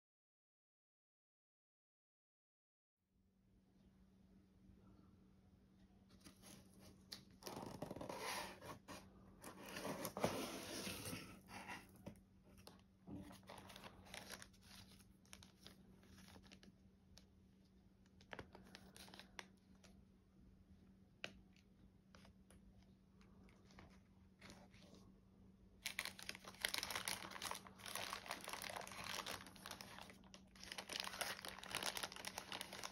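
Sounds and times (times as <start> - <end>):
plastic bag crinkling: 13.2 - 16.8, 25.8 - 32.9
cardboard tearing: 25.9 - 32.9.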